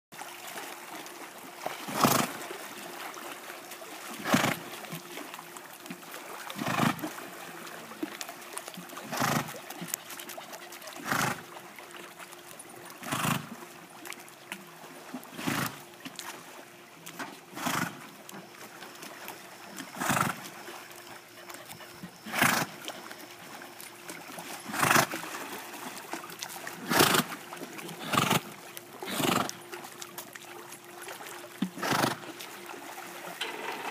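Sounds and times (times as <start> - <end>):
faint steady hum: 0.2 - 33.9
horse snorting breaths: 1.9 - 2.4, 4.2 - 4.6, 6.6 - 7.1, 9.0 - 11.5, 13.0 - 13.6, 15.3 - 15.8, 17.5 - 18.0, 19.9 - 20.4, 21.3 - 22.8, 24.7 - 25.1, 26.8 - 27.4, 28.0 - 29.6, 31.8 - 32.2.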